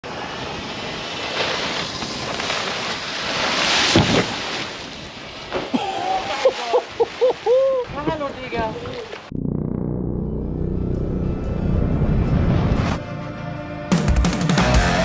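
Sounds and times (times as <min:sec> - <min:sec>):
wind and water noise: 0:00.0 - 0:09.3.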